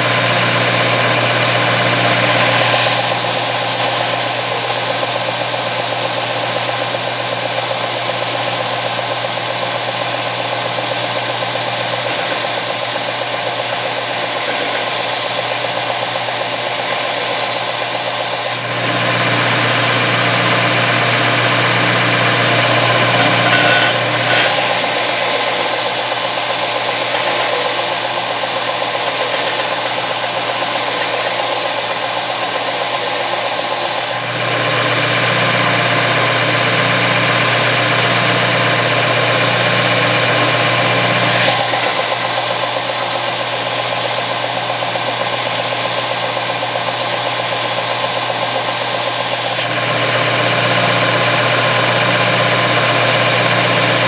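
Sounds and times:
belt sander sanding metal: 0:01.2 - 0:18.6, 0:21.8 - 0:34.3, 0:41.2 - 0:49.7.

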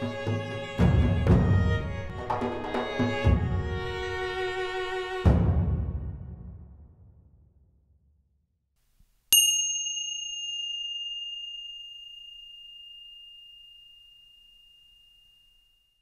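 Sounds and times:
metal chime ding: 0:09.3 - 0:16.0.

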